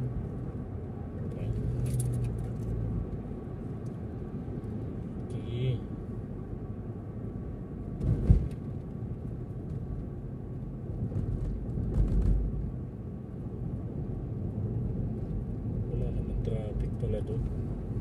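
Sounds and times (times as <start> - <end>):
car engine and tyre rumble: 0.0 - 18.0
sharp thump: 8.0 - 8.6.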